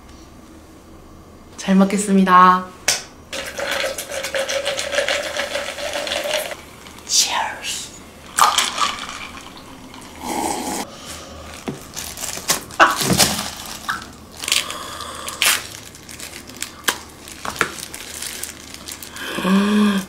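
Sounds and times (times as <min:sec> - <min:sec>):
plastic gloves crinkling: 0:11.1 - 0:20.0
crab shell cracking and tearing: 0:12.3 - 0:19.2.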